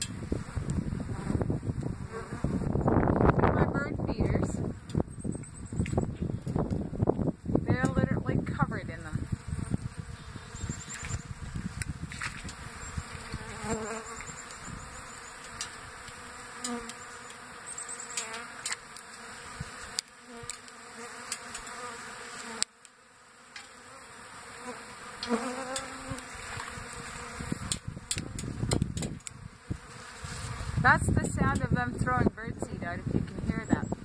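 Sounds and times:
swarm of bees buzzing: 0.0 - 4.9, 6.4 - 34.0
bee droning close past: 8.9 - 28.6
birdseed pinging: 12.5 - 19.3.

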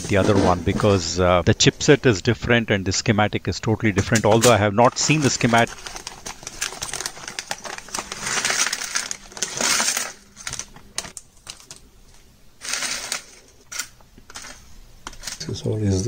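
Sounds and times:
small parts clicking and rattling: 4.1 - 11.9, 12.6 - 15.5
plastic bag crinkling: 4.4 - 11.9.

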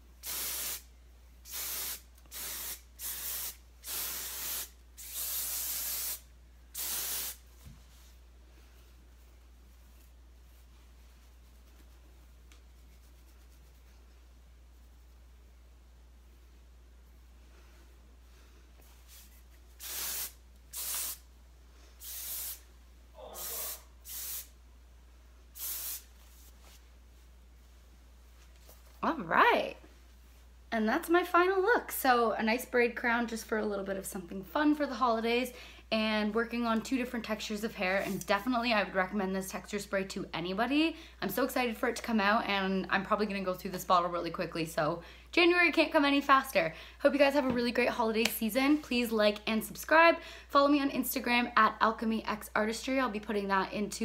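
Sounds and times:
aerosol spray hissing: 0.2 - 0.9, 1.5 - 7.4, 19.8 - 21.3, 22.0 - 22.7, 23.4 - 24.6, 25.6 - 26.1.

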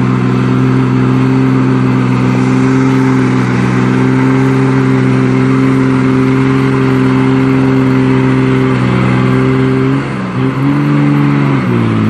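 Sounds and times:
heavy truck engine revving: 0.0 - 12.0.

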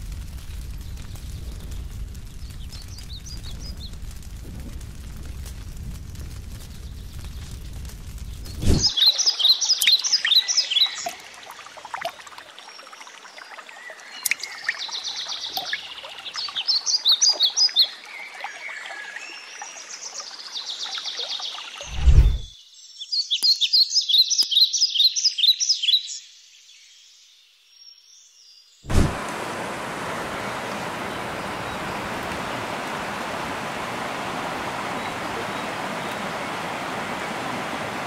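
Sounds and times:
songbirds chirping: 0.6 - 4.1, 6.6 - 28.9, 29.5 - 38.0
hiss of water: 8.5 - 20.5, 21.8 - 22.5, 28.9 - 38.0
low thud: 21.9 - 22.5, 28.9 - 29.2.

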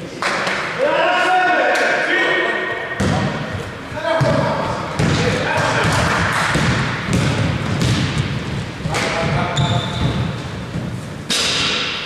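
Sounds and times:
basketball bouncing on court: 3.0 - 3.4, 4.2 - 11.0.

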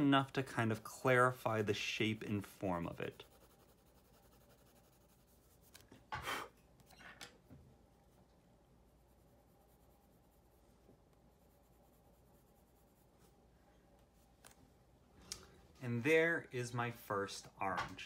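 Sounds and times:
pencil shading on paper: 3.0 - 5.8.

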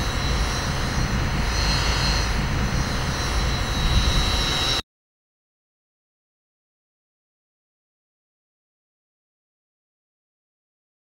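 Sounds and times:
drone propellers whining: 0.0 - 4.8.

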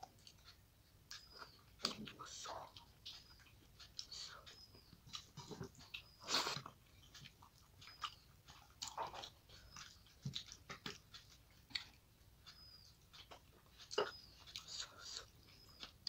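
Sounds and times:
chewing: 0.0 - 16.0.

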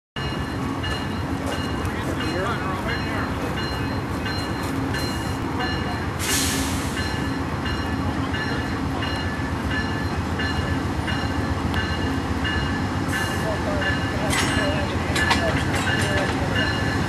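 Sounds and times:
diesel locomotives idling: 0.2 - 17.0
locomotive bell ringing: 0.2 - 17.0
air hiss: 6.2 - 7.0.

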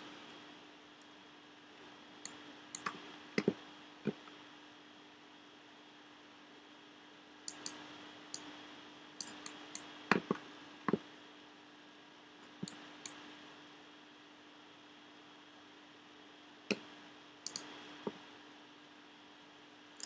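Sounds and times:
faint steady hum: 0.0 - 20.0
mouse and keyboard clicks: 7.5 - 7.8, 16.7 - 18.2.

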